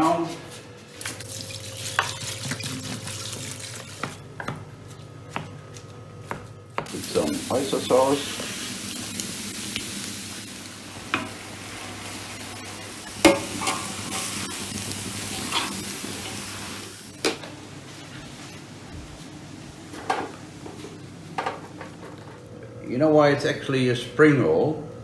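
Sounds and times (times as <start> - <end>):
vegetables sizzling in a wok: 6.9 - 18.6.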